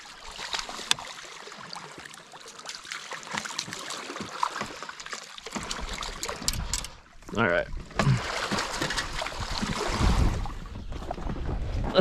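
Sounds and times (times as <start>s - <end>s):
running water: 0.0s - 10.9s
fish splashing at water surface: 8.0s - 10.5s.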